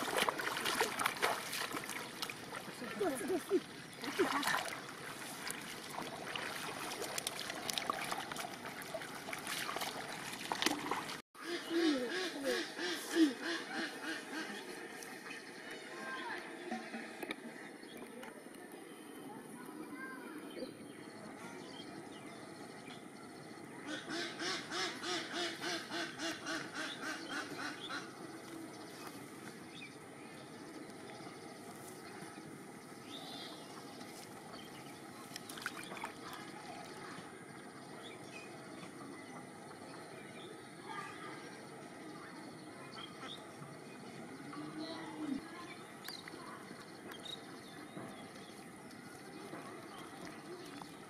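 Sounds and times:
water dripping: 0.0 - 11.2
muddy water splashing: 0.0 - 18.4, 30.7 - 38.2, 45.3 - 51.0.

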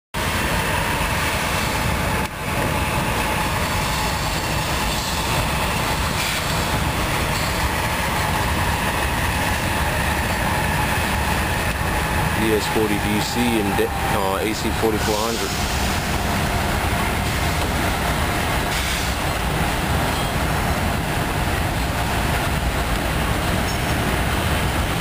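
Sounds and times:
freight train rumbling on rails: 0.2 - 25.0.

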